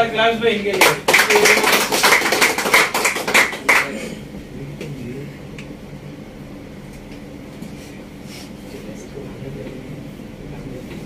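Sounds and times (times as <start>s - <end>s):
group clapping: 0.7s - 4.1s.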